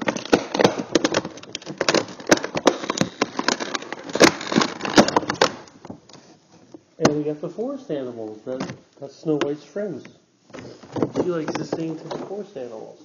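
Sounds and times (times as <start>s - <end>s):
plastic packaging crackling: 0.0s - 6.2s.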